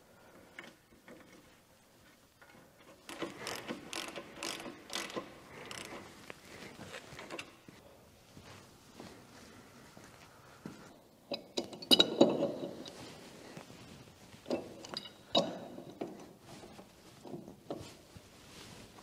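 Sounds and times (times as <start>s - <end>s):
metal tools clinking: 14.5s - 16.0s.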